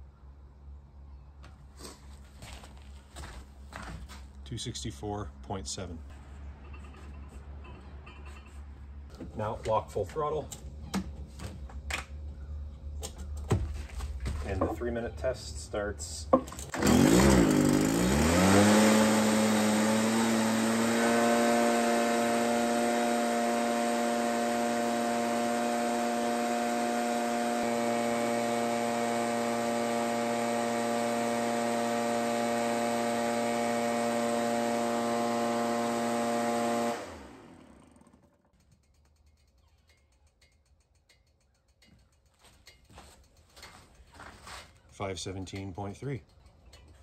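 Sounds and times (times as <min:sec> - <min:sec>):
leaf blower engine droning: 0:16.7 - 0:38.5.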